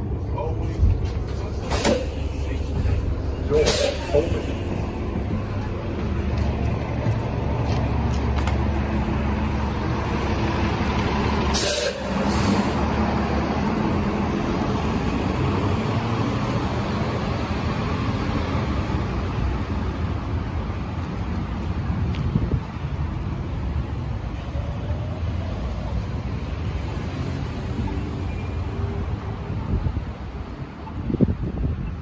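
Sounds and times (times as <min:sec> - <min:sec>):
bus engine rumbling: 0:00.0 - 0:32.0
street traffic noise: 0:00.0 - 0:32.0
air brake hiss: 0:03.6 - 0:04.2, 0:11.5 - 0:12.7.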